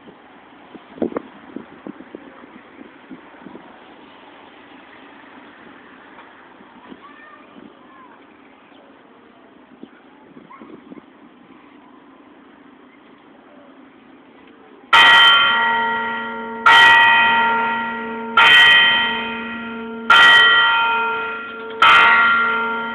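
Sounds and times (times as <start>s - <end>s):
bell tolling: 15.0s - 22.9s.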